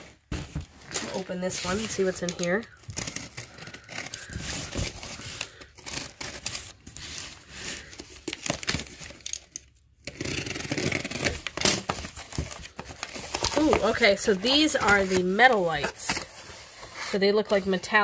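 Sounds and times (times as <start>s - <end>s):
packaging rustling: 0.0s - 17.8s
tape and cardboard ripping: 1.0s - 17.1s.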